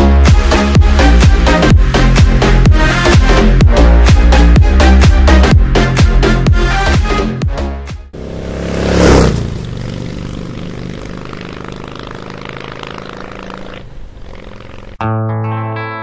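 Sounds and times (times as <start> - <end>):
rising whoosh: 8.2 - 11.8
engine-like drone: 8.2 - 15.0.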